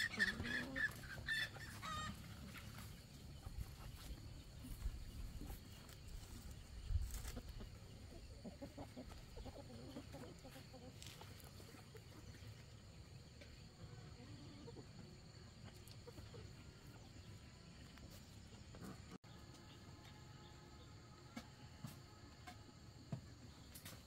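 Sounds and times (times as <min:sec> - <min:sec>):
chicken clucking: 0:00.0 - 0:19.2.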